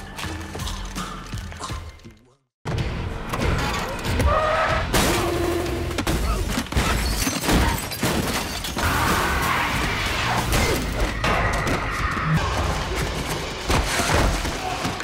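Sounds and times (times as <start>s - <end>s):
action film music: 0.0s - 7.2s, 8.8s - 15.0s
glass shattering: 6.2s - 8.9s.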